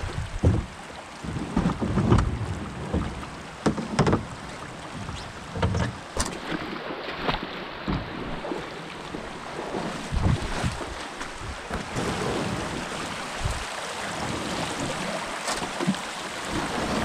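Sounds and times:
paddle and hull knocking: 0.0s - 6.7s
rushing water: 0.0s - 17.0s.

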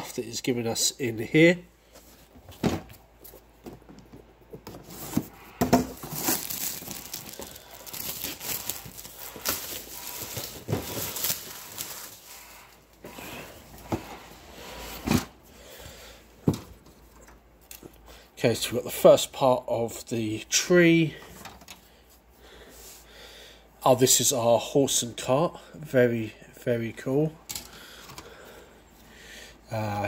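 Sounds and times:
plastic wrapping crinkling: 5.9s - 12.8s.

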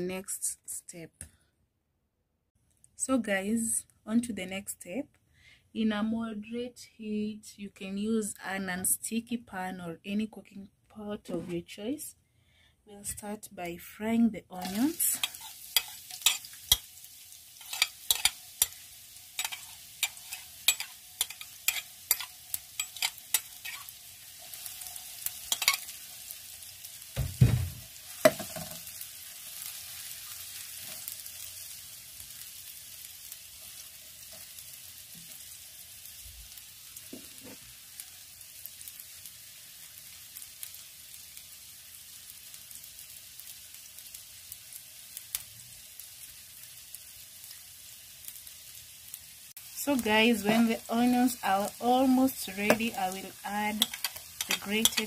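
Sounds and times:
onions sizzling in hot oil: 13.2s - 55.0s.

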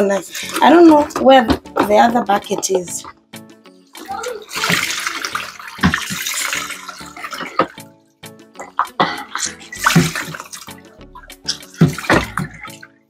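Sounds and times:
faint music: 0.0s - 13.0s
water sloshing and splashing: 0.0s - 13.0s.

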